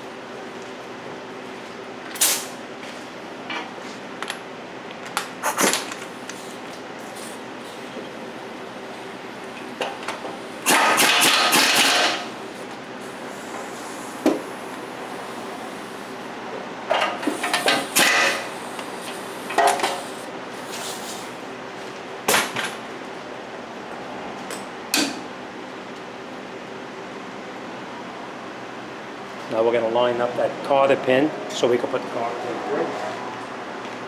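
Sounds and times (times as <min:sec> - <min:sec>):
pneumatic wrench bursts: 0:10.6 - 0:12.2, 0:17.3 - 0:18.5.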